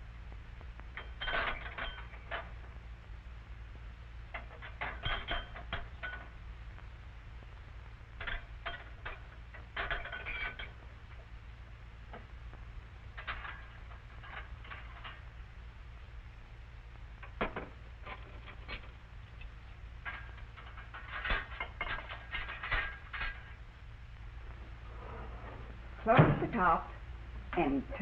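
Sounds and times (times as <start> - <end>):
low hum: 0.0 - 28.0.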